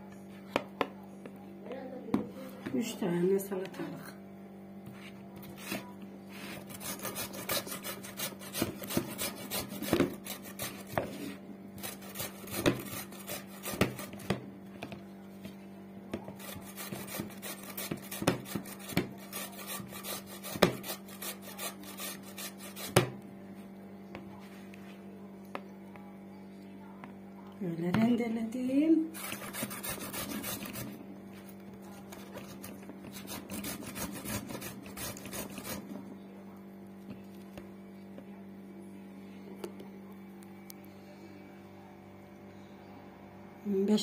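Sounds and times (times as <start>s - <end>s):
cucumber rasping on metal grater: 6.5s - 11.2s, 11.8s - 14.3s, 16.4s - 23.0s, 29.1s - 31.0s, 32.1s - 35.9s.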